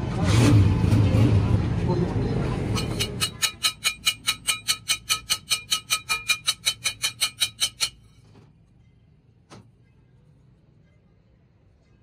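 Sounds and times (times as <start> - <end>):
street traffic rumble: 0.0 - 12.0
hammer tapping on steel: 2.8 - 8.1.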